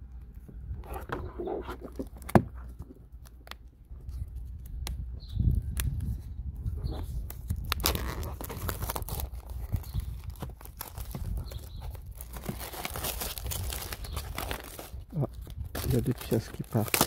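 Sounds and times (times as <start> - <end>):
plastic shrink-wrap crinkling: 7.1 - 17.0.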